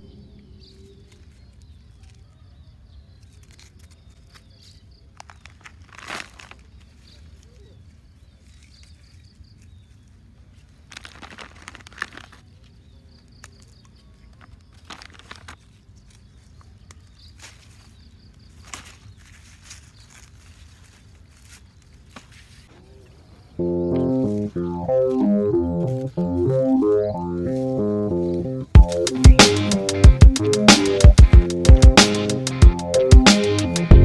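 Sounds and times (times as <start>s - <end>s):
low outdoor background: 0.0s - 34.0s
plastic bag crinkling: 5.2s - 7.1s, 10.7s - 12.5s, 14.3s - 15.8s.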